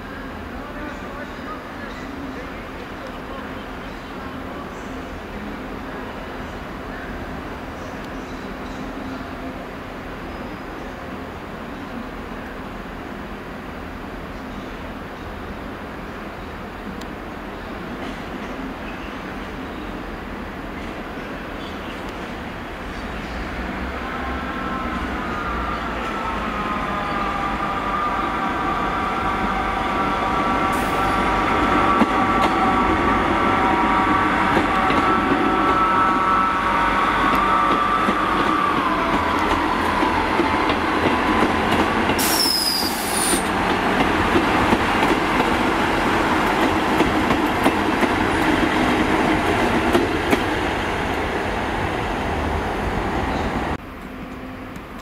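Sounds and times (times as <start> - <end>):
train rumble: 17.8 - 55.0
hiss with falling whistle: 42.2 - 43.5
train wheels squealing: 42.2 - 43.5
rail joint clicks: 49.4 - 50.6.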